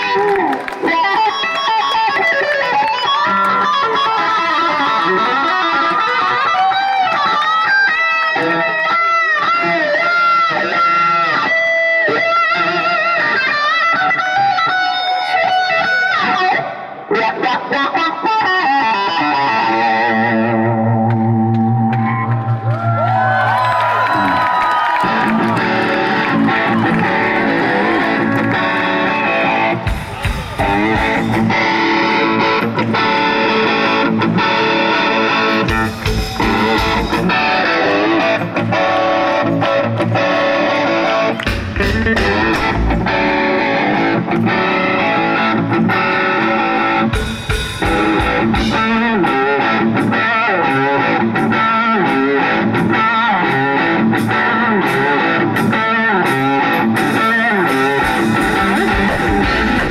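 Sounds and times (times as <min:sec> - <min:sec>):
electric guitar: 0:00.0 - 0:59.9
drums: 0:19.3 - 0:59.9.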